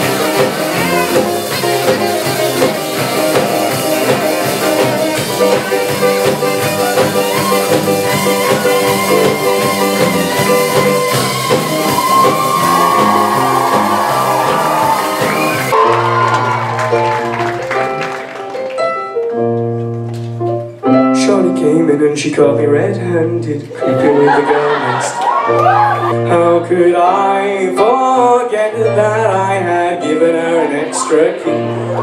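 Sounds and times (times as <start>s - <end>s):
electric guitars: 0.0s - 20.8s
drum kit: 0.0s - 21.5s.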